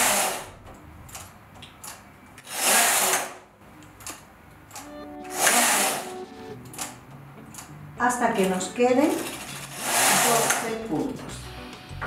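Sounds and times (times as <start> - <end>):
knitting machine carriage swishing: 9.0 - 11.1.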